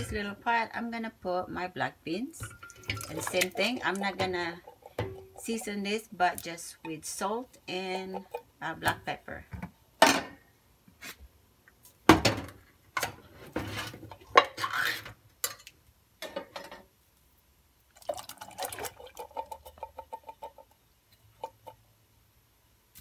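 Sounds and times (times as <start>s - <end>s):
liquid splashing into pot: 2.4s - 5.7s, 17.9s - 20.6s
metal can and saucepan clinking: 2.4s - 7.0s.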